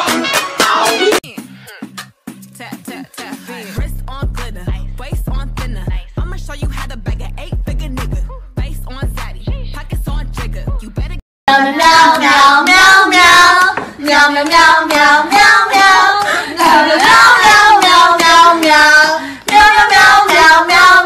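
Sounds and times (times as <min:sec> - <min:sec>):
hip-hop beat with heavy bass: 0:00.0 - 0:11.2
group singing with clapping: 0:11.5 - 0:21.0
hand clapping: 0:19.4 - 0:20.5.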